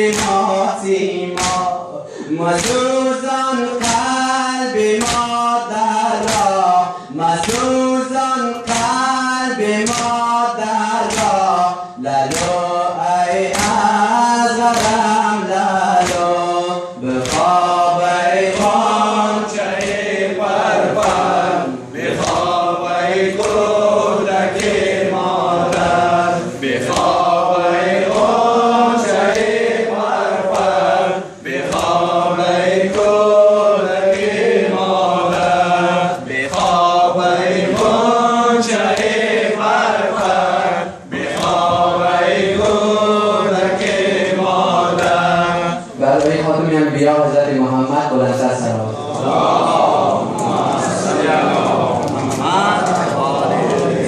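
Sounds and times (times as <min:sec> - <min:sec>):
hands slapping chests: 0:00.0 - 0:00.4, 0:01.3 - 0:01.8, 0:02.6 - 0:03.0, 0:03.8 - 0:04.2, 0:04.8 - 0:05.4, 0:06.1 - 0:06.7, 0:07.4 - 0:07.8, 0:08.5 - 0:09.1, 0:09.8 - 0:10.3, 0:11.0 - 0:11.6, 0:12.2 - 0:12.8, 0:13.4 - 0:13.9, 0:14.6 - 0:15.2, 0:16.0 - 0:16.4, 0:17.1 - 0:17.8, 0:18.4 - 0:20.2, 0:20.8 - 0:21.4, 0:22.0 - 0:23.8, 0:24.4 - 0:24.9, 0:25.6 - 0:26.0, 0:26.8 - 0:27.4, 0:28.0 - 0:29.6, 0:30.3 - 0:30.9, 0:31.5 - 0:32.2, 0:32.9 - 0:33.3, 0:35.2 - 0:37.0, 0:37.6 - 0:38.1, 0:38.7 - 0:43.0, 0:43.7 - 0:44.2, 0:44.8 - 0:45.3, 0:51.5 - 0:54.0
men chanting together: 0:00.0 - 0:47.4, 0:48.1 - 0:54.0.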